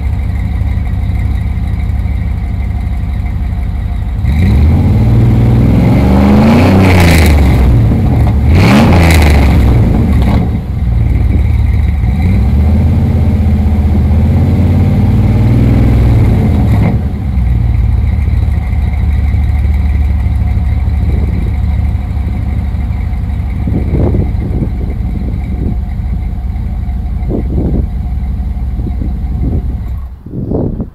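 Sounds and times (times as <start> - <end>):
engine idling: 0.0 - 30.8
engine revving: 4.1 - 26.2.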